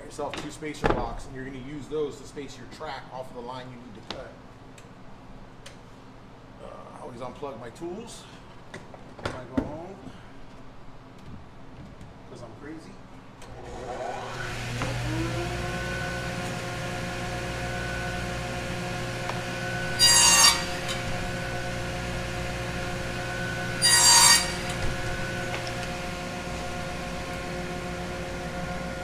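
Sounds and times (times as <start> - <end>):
radial arm saw running: 13.5 - 29.0
saw blade cutting wood: 16.3 - 28.6.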